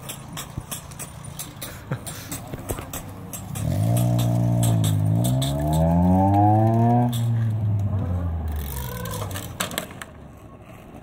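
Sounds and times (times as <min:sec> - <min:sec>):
sharp clacks: 0:00.0 - 0:07.9
vehicle engine accelerating: 0:03.5 - 0:09.5.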